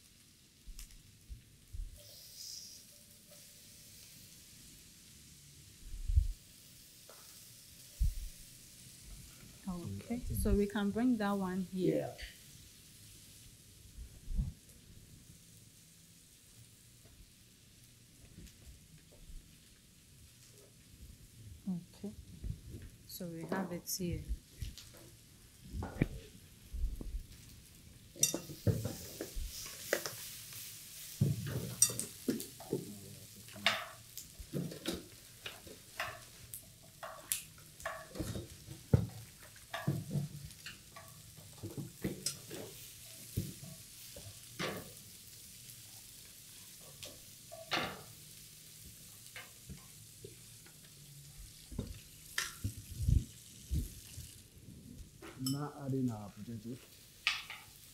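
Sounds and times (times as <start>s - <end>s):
light sizzle: 0.0s - 57.9s
wooden spatula clacking in a pan: 28.2s - 30.3s, 31.3s - 32.9s, 33.6s - 44.9s, 46.9s - 48.1s, 57.2s - 57.8s.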